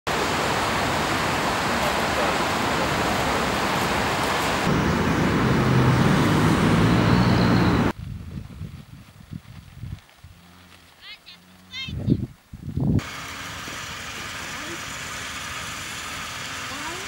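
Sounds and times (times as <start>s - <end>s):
fountain water splashing: 0.1s - 6.4s, 13.0s - 17.0s.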